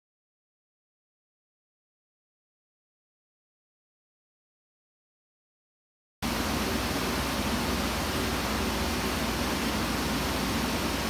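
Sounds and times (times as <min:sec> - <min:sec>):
steady rushing noise: 0:06.2 - 0:11.0.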